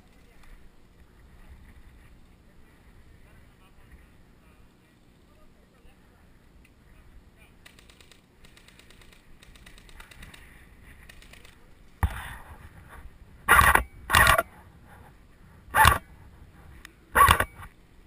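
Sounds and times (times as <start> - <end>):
airsoft rifle bursts: 13.5 - 14.5, 17.2 - 17.7.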